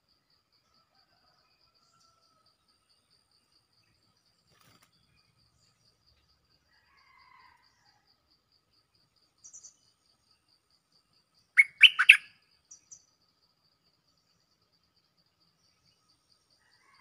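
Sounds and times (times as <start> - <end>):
bulbul singing: 11.6 - 13.0.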